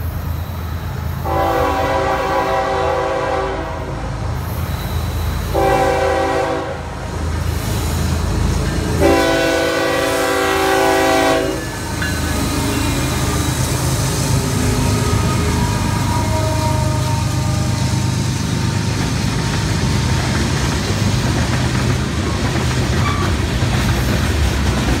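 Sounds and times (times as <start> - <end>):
diesel locomotive rumbling: 0.0 - 25.0
locomotive air horn blasts: 1.2 - 4.1, 5.5 - 7.0, 9.0 - 11.8, 14.6 - 18.0.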